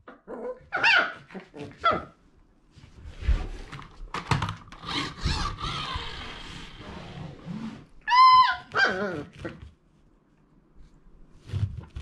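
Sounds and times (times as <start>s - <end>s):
puppy yip: 0.7s - 2.1s, 8.1s - 9.3s.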